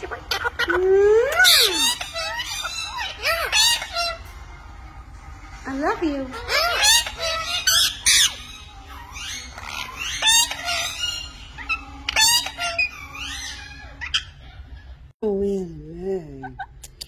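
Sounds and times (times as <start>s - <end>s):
parrots chattering softly: 0.0s - 15.1s
parrots squawking: 0.0s - 15.1s.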